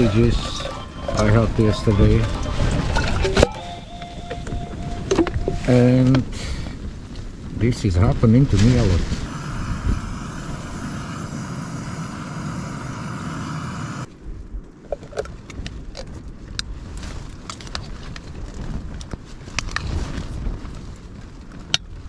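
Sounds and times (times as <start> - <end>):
gas stove hissing: 9.2 - 14.1.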